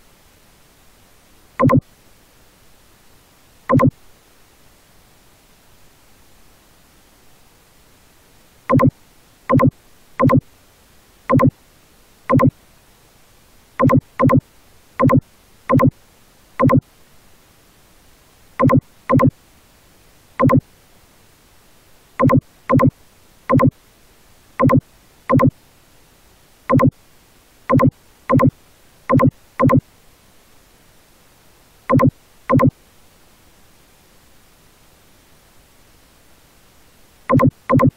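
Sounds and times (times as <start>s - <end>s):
faint background hiss: 0.0s - 37.9s
short computer beeps: 1.6s - 1.8s, 3.7s - 3.9s, 8.7s - 8.9s, 9.5s - 10.4s, 11.3s - 11.5s, 12.3s - 12.5s, 13.8s - 14.4s, 15.0s - 15.9s, 16.6s - 16.8s, 18.6s - 19.3s, 20.4s - 20.6s, 22.2s - 22.9s, 23.5s - 23.7s, 24.6s - 25.5s, 26.7s - 26.9s, 27.7s - 28.5s, 29.1s - 29.8s, 31.9s - 32.7s, 37.3s - 37.9s.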